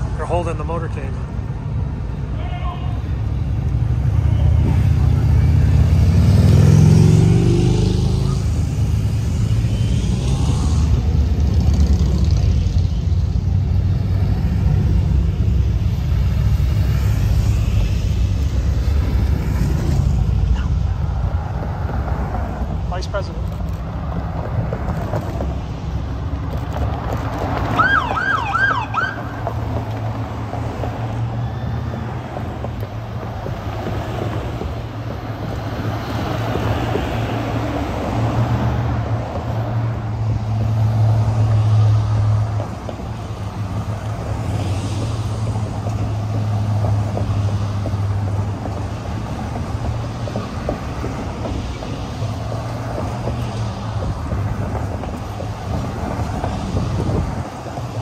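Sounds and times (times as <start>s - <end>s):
low hum of vehicle engines: 0.0s - 58.0s
police siren yelp: 27.8s - 29.4s.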